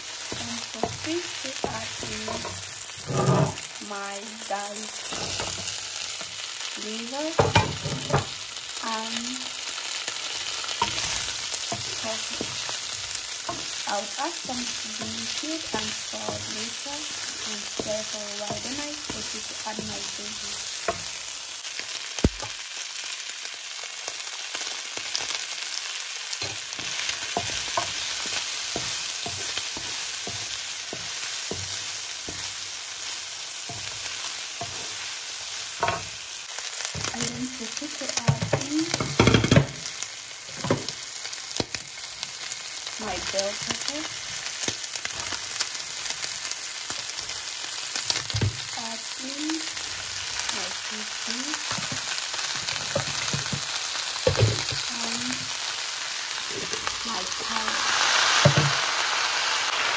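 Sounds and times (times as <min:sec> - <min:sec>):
food sizzling in a frying pan: 0:00.0 - 0:59.9
wooden spoon scraping a pan: 0:00.2 - 0:06.3, 0:10.7 - 0:21.2, 0:26.4 - 0:32.6, 0:56.4 - 0:58.8.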